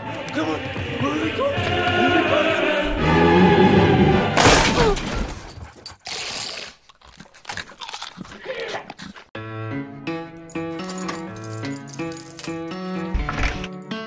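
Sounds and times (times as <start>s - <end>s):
dramatic music: 0.0s - 4.5s
door smashing crash: 4.3s - 5.7s.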